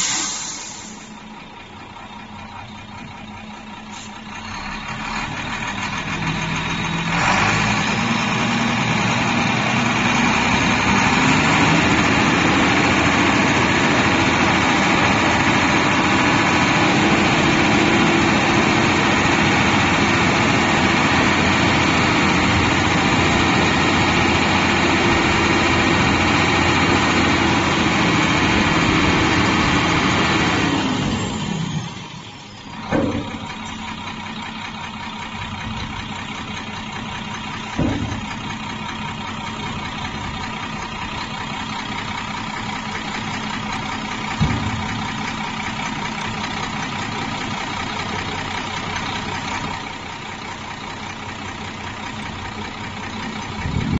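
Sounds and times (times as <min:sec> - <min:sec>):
diesel truck engine idling and revving: 0:00.0 - 0:53.9
hydraulic hoist raising dump body: 0:30.9 - 0:34.2.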